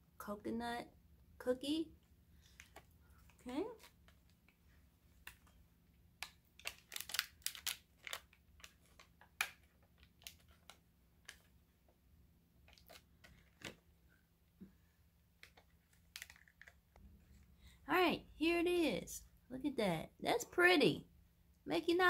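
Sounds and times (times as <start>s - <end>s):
plastic wrapper crinkling: 6.2s - 11.6s, 12.6s - 13.8s, 15.4s - 17.0s.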